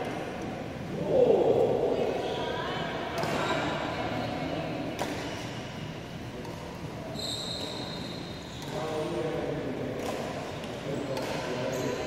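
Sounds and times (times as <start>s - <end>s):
racket hitting shuttlecock: 5.0s - 5.6s, 10.0s - 11.7s.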